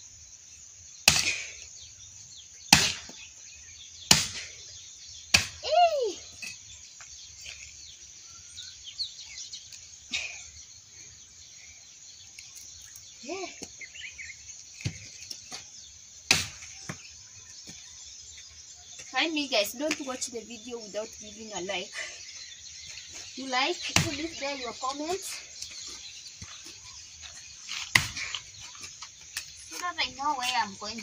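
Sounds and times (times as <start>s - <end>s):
birds chirping: 0.0s - 31.0s
crickets chirping: 0.0s - 31.0s
axe chopping log: 1.1s - 1.5s, 2.7s - 3.2s, 4.1s - 4.5s, 5.3s - 5.6s, 16.3s - 17.0s, 27.9s - 28.3s.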